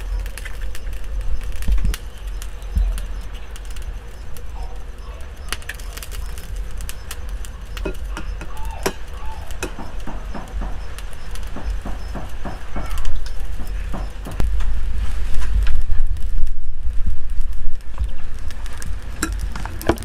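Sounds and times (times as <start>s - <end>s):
wind on microphone: 0.0s - 5.1s, 5.9s - 20.0s
eggshells cracking: 0.0s - 14.2s
bird chirps: 0.0s - 14.4s.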